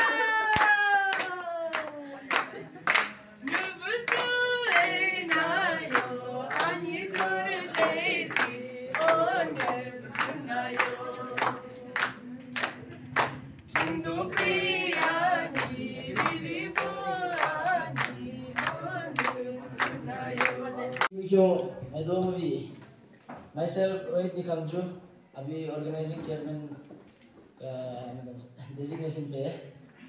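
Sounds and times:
rhythmic hand clapping: 0.0s - 21.1s
group of voices singing: 3.4s - 21.1s.

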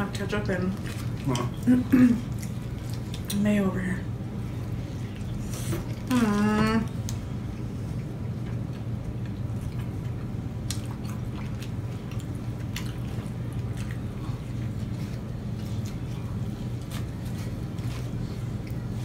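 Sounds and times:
steady low hum: 0.0s - 19.0s
people chewing: 0.1s - 3.6s, 4.3s - 19.0s.

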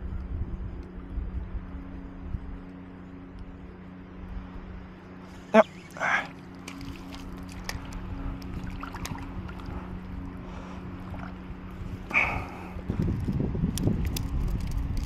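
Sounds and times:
wind buffeting microphone: 0.0s - 2.8s, 6.8s - 15.0s
steady low hum: 0.0s - 15.0s.

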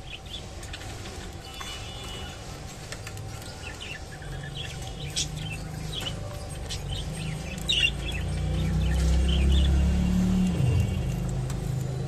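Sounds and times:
budgerigars chirping: 3.6s - 9.8s.

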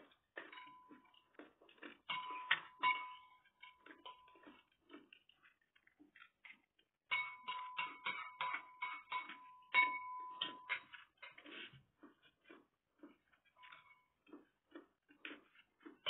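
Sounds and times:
chewing clicks: 0.0s - 7.0s, 10.4s - 16.0s
spoon scraping a plate: 1.9s - 5.2s, 7.1s - 12.3s, 13.1s - 14.4s.

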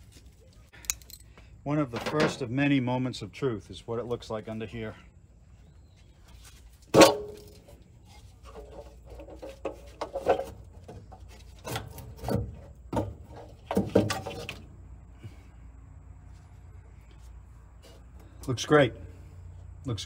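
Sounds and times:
metal scrapes and knocks: 6.9s - 14.6s.

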